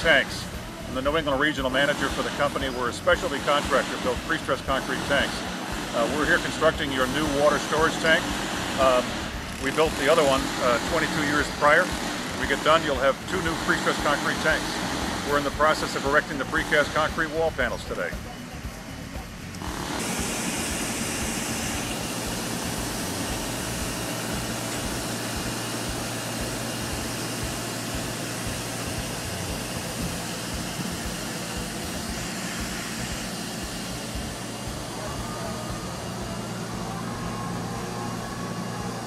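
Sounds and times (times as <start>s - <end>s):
crane diesel engine running: 0.0s - 39.0s.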